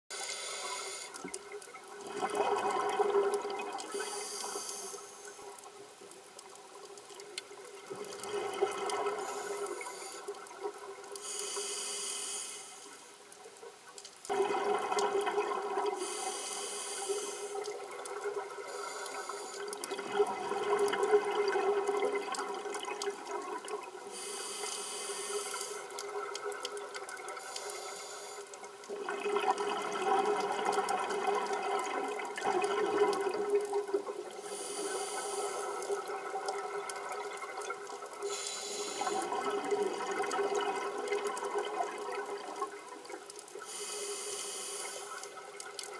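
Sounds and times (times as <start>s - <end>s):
hissing regulator inhalation: 0.2s - 1.3s, 3.9s - 5.4s, 38.2s - 39.3s, 43.7s - 45.3s
gurgling exhaled bubbles: 1.4s - 4.1s, 7.6s - 11.0s, 14.3s - 16.2s, 19.8s - 24.0s, 28.8s - 34.5s, 35.2s - 43.3s.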